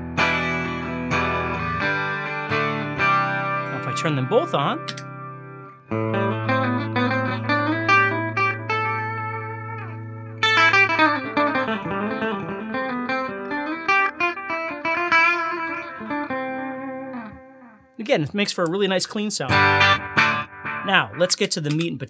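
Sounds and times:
clean electric guitar chords: 0.0 - 21.9.

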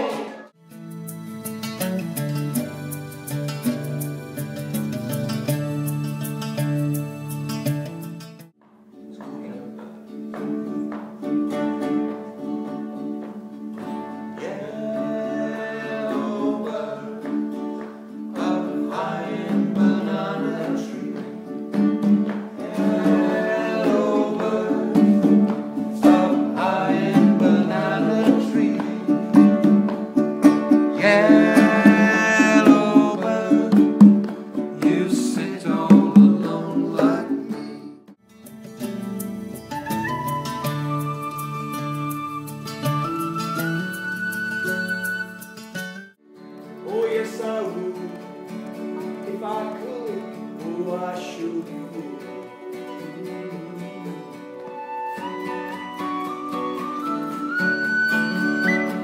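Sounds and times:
ukulele and guitar strumming: 0.0 - 59.0
conga drum: 1.7 - 8.8, 18.3 - 37.9
man singing: 14.3 - 17.5, 18.3 - 21.5, 22.6 - 25.4, 26.0 - 29.7, 30.9 - 34.1, 34.7 - 38.1, 46.8 - 48.5, 49.2 - 54.6.

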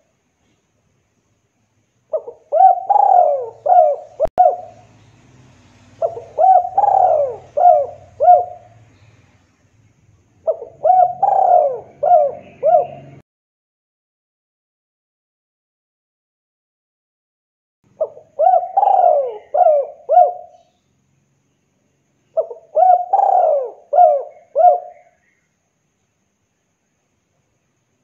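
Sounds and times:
dove cooing: 2.1 - 4.9, 6.0 - 8.9, 10.4 - 13.2, 18.0 - 20.6, 22.4 - 25.2.

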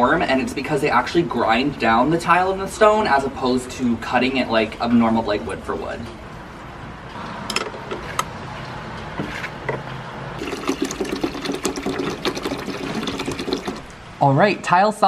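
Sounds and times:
water glugging into plastic tray: 10.4 - 13.9.

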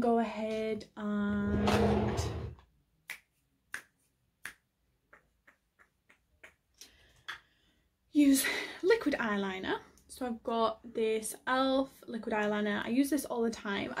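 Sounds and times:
finger snaps: 3.1 - 7.5.

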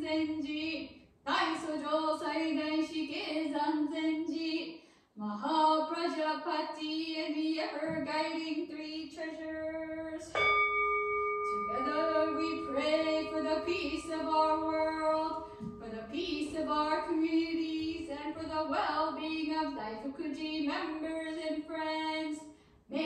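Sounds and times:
woman singing: 0.0 - 10.4, 11.4 - 23.0
bell ringing: 10.3 - 19.4.

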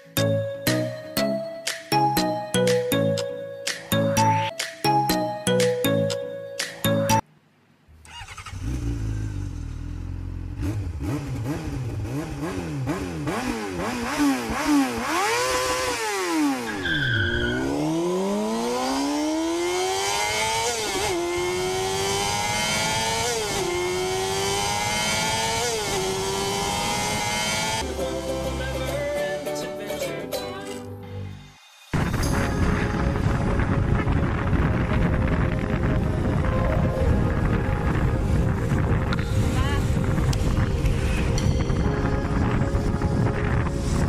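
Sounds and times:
engine revving and accelerating: 8.2 - 27.9.

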